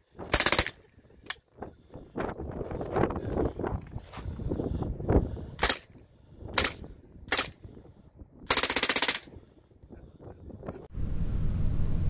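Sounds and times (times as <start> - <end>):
machine gun bursts: 0.3 - 0.8, 8.5 - 9.3.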